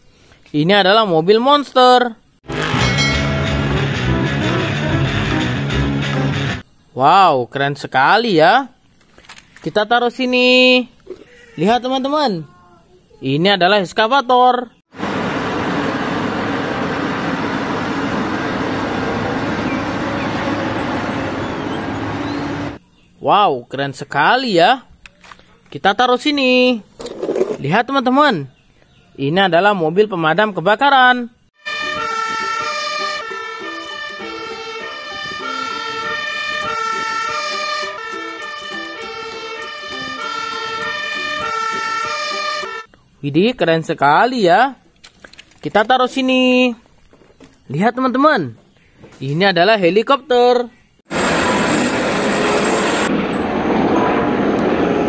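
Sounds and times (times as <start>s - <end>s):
excavator running: 2.5s - 6.6s, 14.9s - 22.8s, 51.1s - 55.0s
fire engine two-tone siren: 31.6s - 42.9s.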